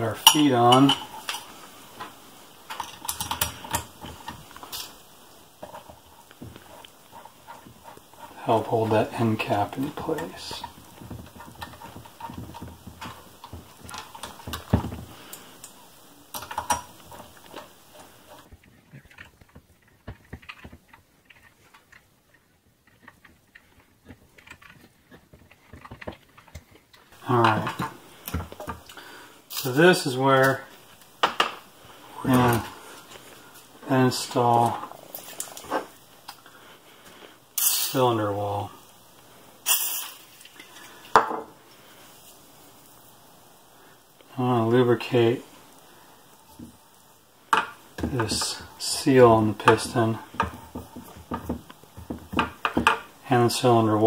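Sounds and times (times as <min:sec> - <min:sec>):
metal parts clicking and tapping: 0:02.7 - 0:05.0, 0:15.6 - 0:17.7.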